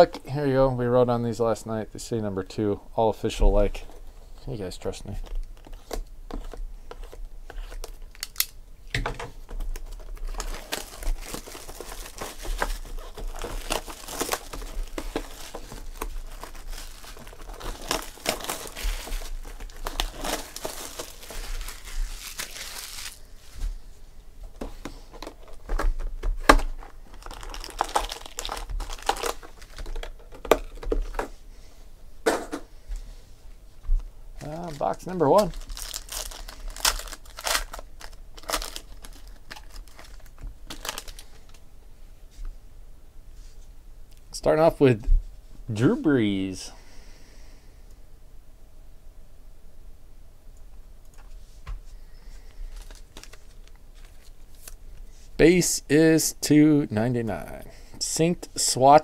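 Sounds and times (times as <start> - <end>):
plastic shrink wrap crinkling: 3.8 - 8.6, 9.4 - 23.8, 24.5 - 31.3, 34.4 - 41.6, 52.4 - 55.1.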